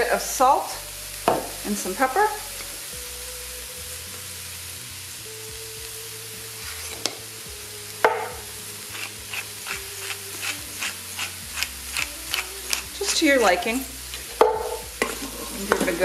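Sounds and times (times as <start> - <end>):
food sizzling in a pot: 0.0 - 16.0
pepper mill grinding: 8.9 - 15.7.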